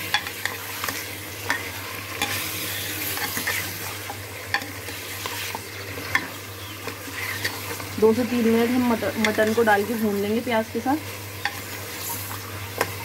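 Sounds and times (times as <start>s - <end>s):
meat and onions sizzling: 0.0s - 13.0s.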